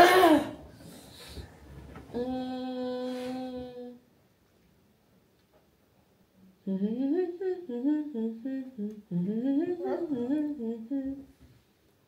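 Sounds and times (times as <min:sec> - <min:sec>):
person humming a melody: 0:02.2 - 0:04.0, 0:06.6 - 0:11.3.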